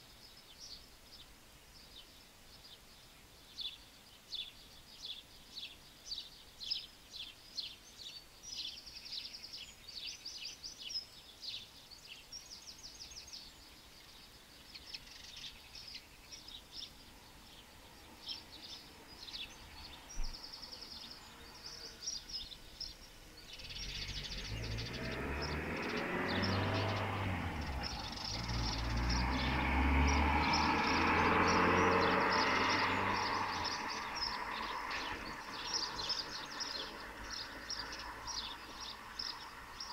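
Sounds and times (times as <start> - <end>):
songbirds chirping and trilling: 0.0 - 39.9
low engine rumble with rushing: 23.6 - 39.8.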